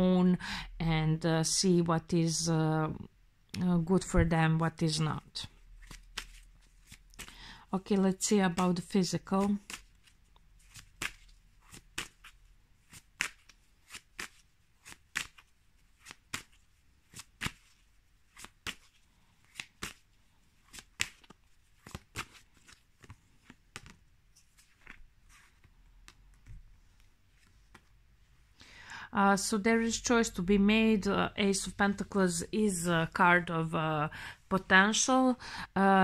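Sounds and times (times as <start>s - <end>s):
cards being shuffled: 5.7s - 7.4s, 8.2s - 28.0s.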